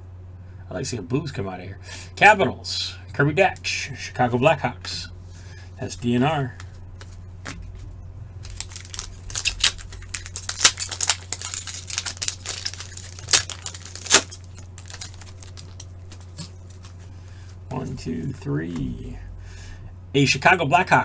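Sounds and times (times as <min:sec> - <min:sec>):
foil wrapper crinkling and tearing: 0:08.4 - 0:17.1.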